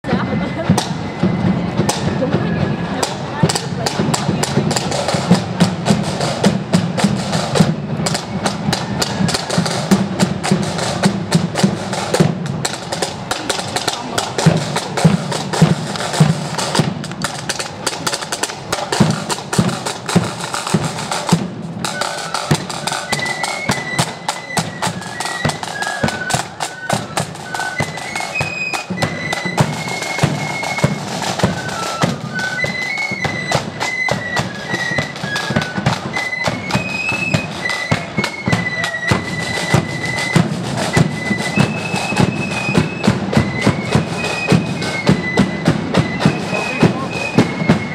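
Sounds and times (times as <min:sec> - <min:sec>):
side drums and bass drum: 0:00.0 - 0:47.9
flutes playing melody: 0:00.1 - 0:47.9.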